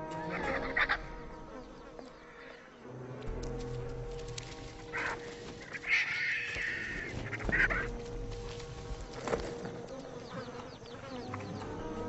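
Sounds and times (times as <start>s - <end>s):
vultures squealing calls: 0.2s - 1.3s, 4.7s - 9.4s.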